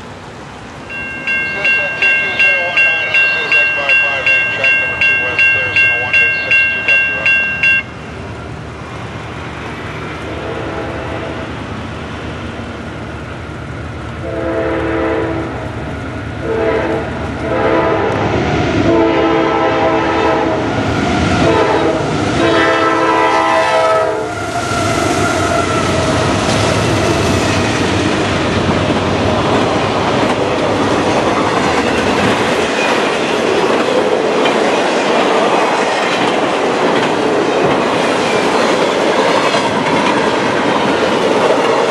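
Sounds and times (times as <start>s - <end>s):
diesel locomotives passing: 0.0s - 41.9s
train wheels rattling on rail: 0.0s - 41.9s
train air horn blasts: 10.3s - 11.5s, 14.2s - 15.6s, 16.4s - 18.2s, 18.9s - 20.6s, 21.4s - 24.4s.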